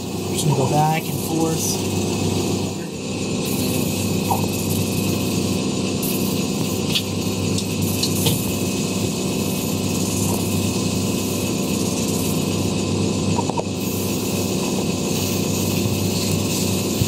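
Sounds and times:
shoe polishing machine motor hum: 0.0s - 17.0s
brush wheel buffing shoe: 3.5s - 7.2s, 7.8s - 12.8s, 13.8s - 17.0s.

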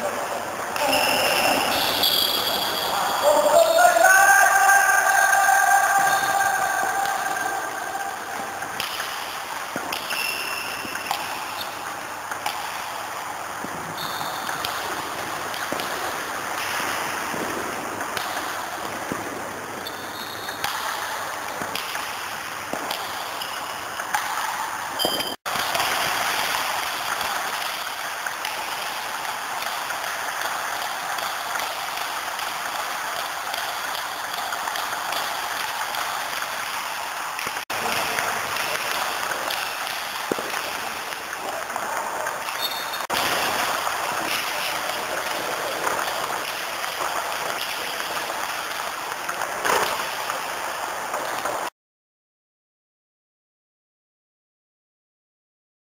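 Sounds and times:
bats striking balls: 5.3s - 48.8s.

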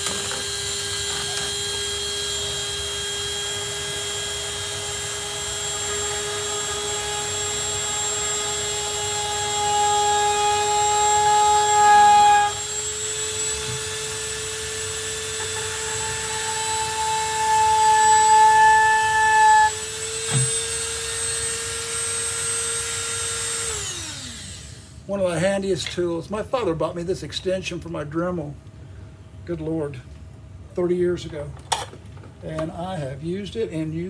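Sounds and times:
rotary tool whine: 0.0s - 25.1s.

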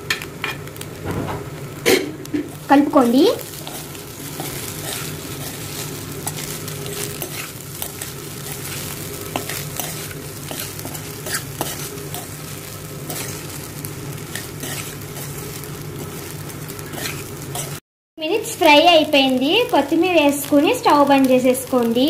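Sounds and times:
rice sizzling in a pan: 0.0s - 22.0s
metal spatula scraping a pan: 3.0s - 12.4s, 13.1s - 13.5s, 14.3s - 15.4s, 16.8s - 17.8s.

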